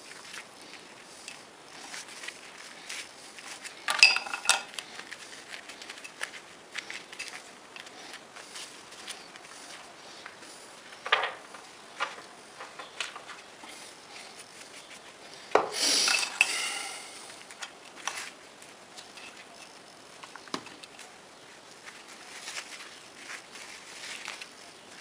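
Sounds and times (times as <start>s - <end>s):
metal tools clinking on steel: 3.9s - 4.8s.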